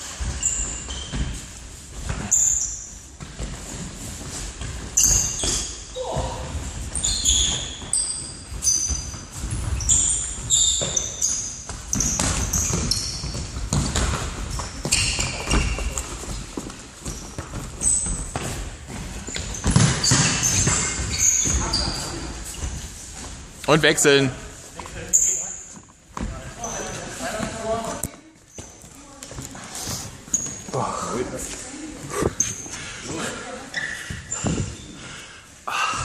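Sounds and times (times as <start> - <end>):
shoes squeaking on hall floor: 0.0 - 36.0
football kicked and thudding: 19.6 - 20.9.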